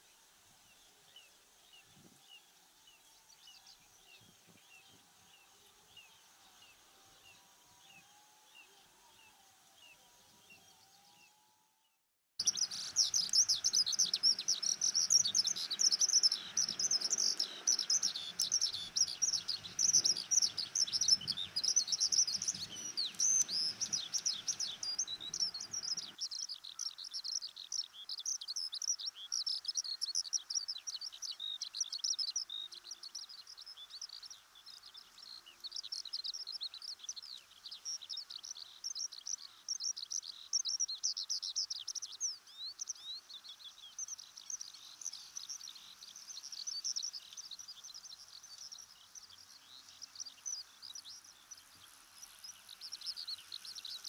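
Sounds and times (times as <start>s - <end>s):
skylark singing: 12.4s - 34.2s.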